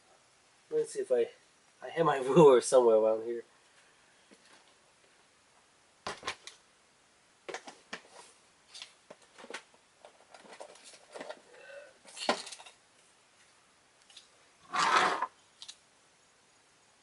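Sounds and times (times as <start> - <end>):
small objects being rummaged: 14.7 - 15.8.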